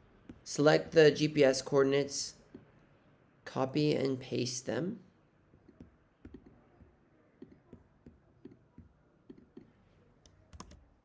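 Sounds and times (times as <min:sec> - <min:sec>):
laptop keyboard and trackpad clicking: 0:07.4 - 0:10.9.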